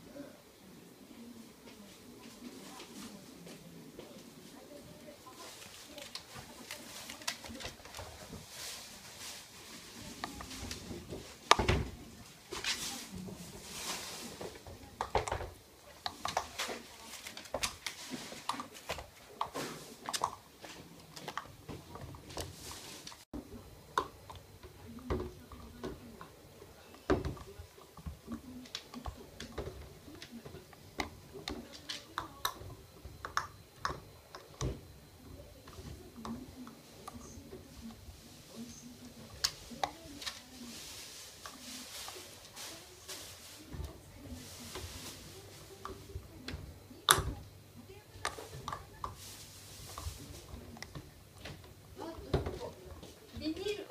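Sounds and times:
puppy chewing toy: 47.0s - 53.8s.

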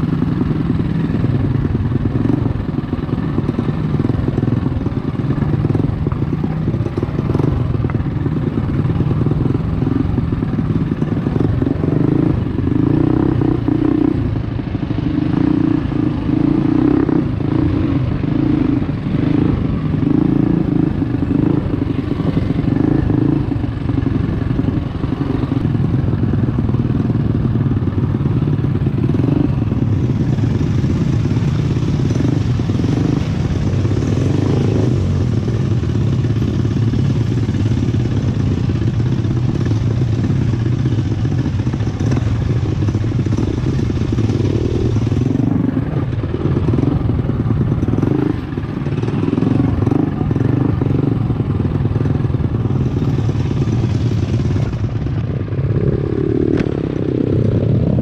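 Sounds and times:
mini bike engine running: 0.0s - 58.0s.

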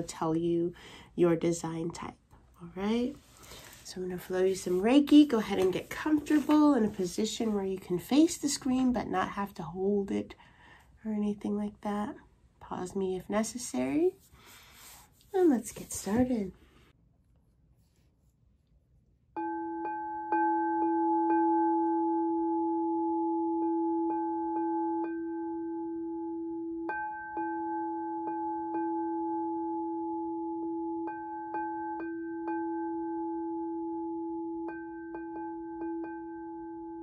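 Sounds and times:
singing bowl ringing tone: 19.4s - 37.0s.

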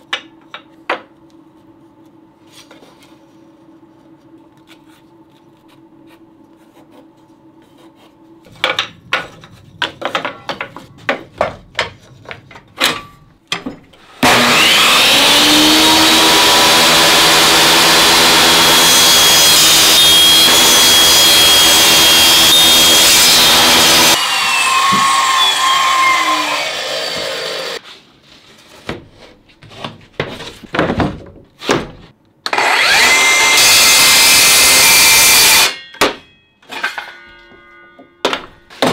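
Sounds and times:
table saw cutting wood: 14.1s - 27.8s, 32.5s - 35.8s.

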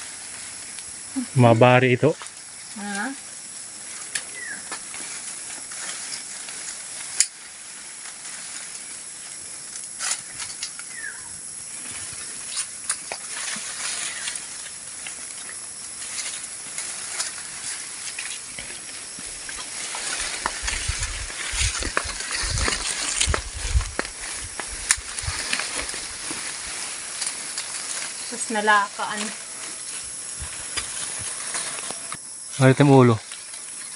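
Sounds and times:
leaves and twigs rustling: 0.0s - 1.5s, 2.1s - 33.9s
steady hiss: 0.0s - 33.9s
leaves brushing microphone: 2.2s - 32.4s
twigs clicking and snapping: 4.1s - 7.5s, 12.2s - 28.4s.

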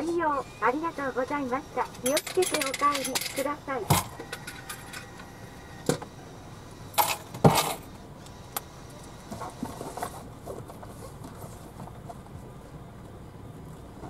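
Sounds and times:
small metal objects clinking: 2.0s - 3.5s.

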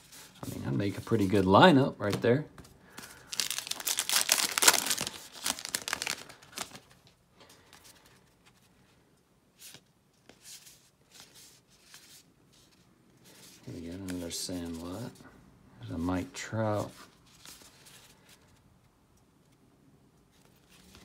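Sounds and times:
card pack wrapper tearing: 3.1s - 6.9s.

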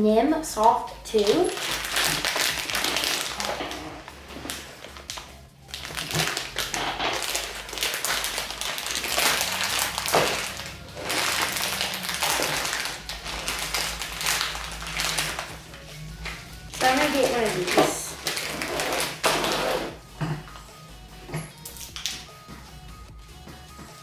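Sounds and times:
plastic bag crinkling: 1.2s - 20.0s.

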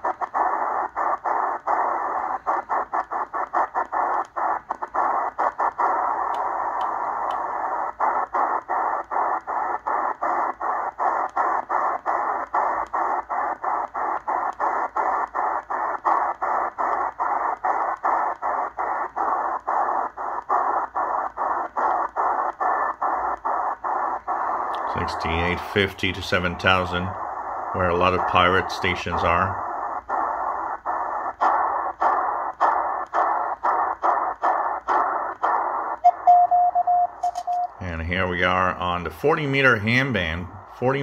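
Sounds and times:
radio static chopped by mutes: 0.0s - 41.0s.

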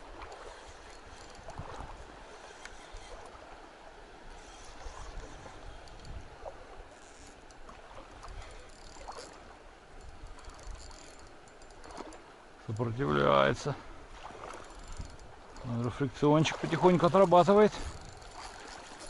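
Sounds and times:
faint clicks: 2.4s - 3.3s.

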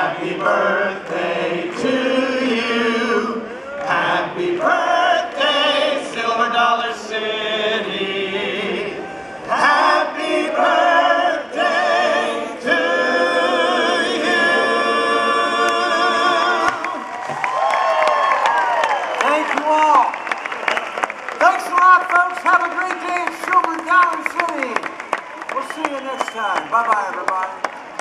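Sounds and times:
clapping and cheering: 0.0s - 2.9s, 3.6s - 6.4s, 15.6s - 28.0s
group of voices singing: 0.0s - 17.1s.

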